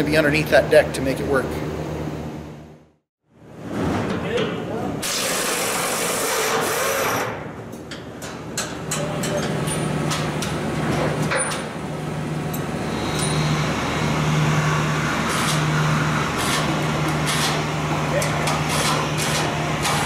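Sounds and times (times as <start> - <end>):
chain hoist motor humming: 12.4 - 14.1.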